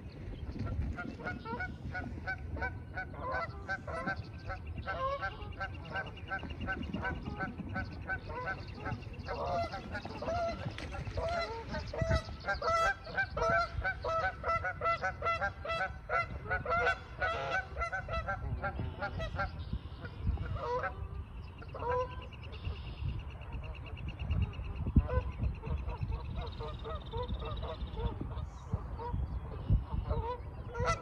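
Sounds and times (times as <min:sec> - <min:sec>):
geese honking: 0:01.0 - 0:21.0, 0:21.6 - 0:22.8, 0:29.9 - 0:31.0.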